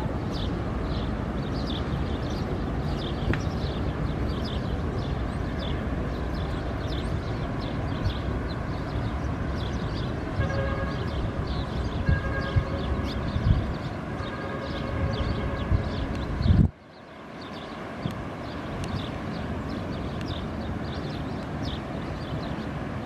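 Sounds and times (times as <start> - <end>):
wind on microphone: 0.0 - 23.0.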